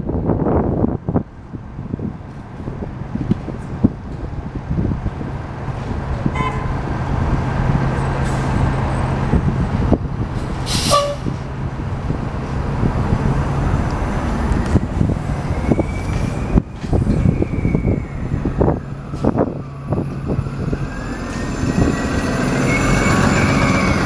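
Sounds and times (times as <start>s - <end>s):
bus electric drive whine: 0.0s - 24.0s
buses and traffic: 0.0s - 24.0s
bus horn toots: 6.2s - 6.8s, 10.8s - 11.4s
air brake hiss: 10.5s - 11.4s.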